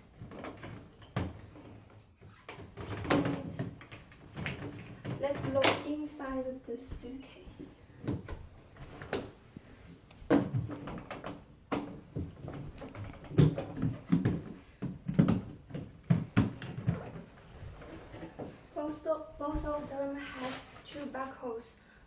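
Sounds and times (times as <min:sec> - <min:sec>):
suitcase knocking and clicking: 0:10.2 - 0:18.4.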